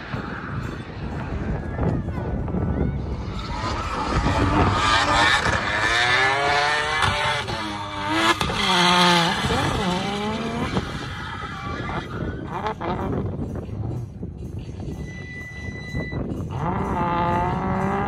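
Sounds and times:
car engine revving: 3.2 - 13.4, 16.4 - 18.0.

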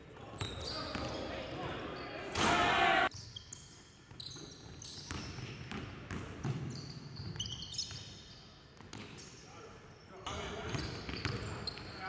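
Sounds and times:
sneaker squeaks: 0.2 - 12.0.

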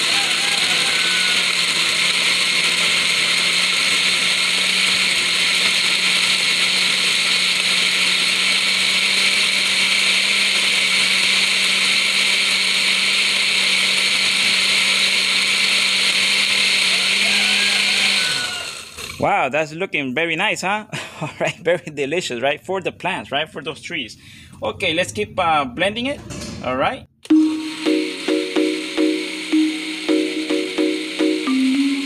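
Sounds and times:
blender running: 0.0 - 19.2, 27.3 - 32.0.

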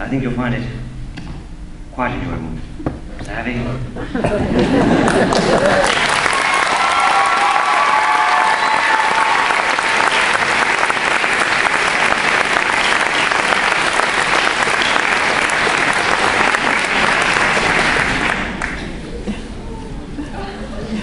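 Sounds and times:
audience applauding: 5.0 - 19.0.

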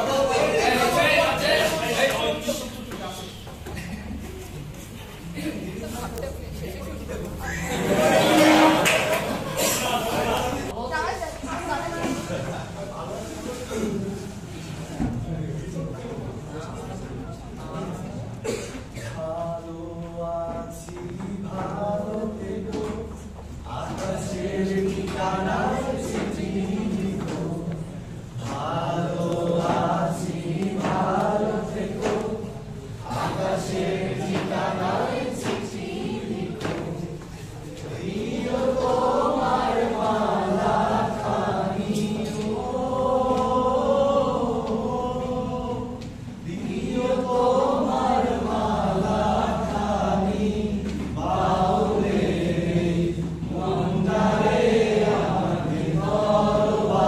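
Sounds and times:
voices singing slow song: 7.4 - 10.8, 17.8 - 57.0.

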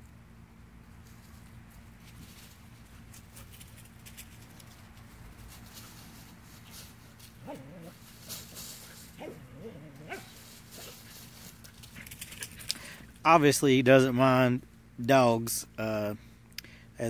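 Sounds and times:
dogs running through dry leaves: 1.1 - 12.9
dog calling: 9.2 - 11.0.

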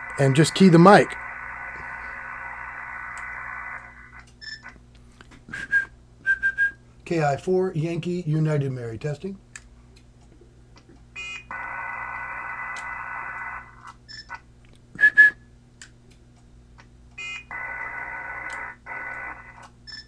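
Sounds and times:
radio receiver hiss: 0.0 - 4.2.

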